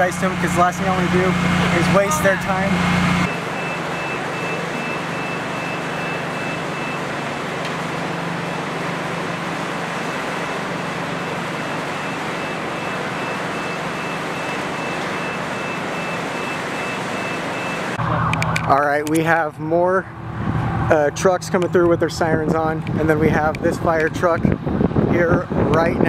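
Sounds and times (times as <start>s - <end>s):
back-up alarm beeping: 0.2s - 7.4s, 10.6s - 18.1s.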